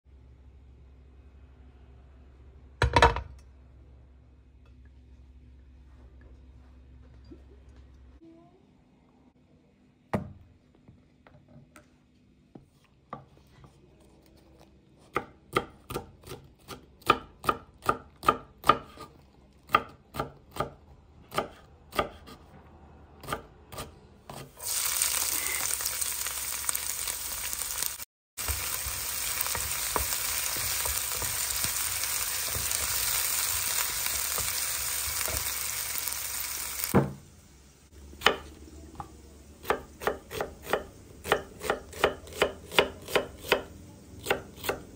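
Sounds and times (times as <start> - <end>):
knife chopping on wooden board: 19.7 - 22.5, 39.6 - 44.8.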